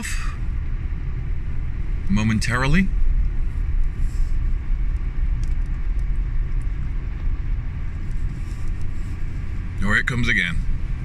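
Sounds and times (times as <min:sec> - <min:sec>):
car rumbling over snowy road: 0:00.0 - 0:11.0.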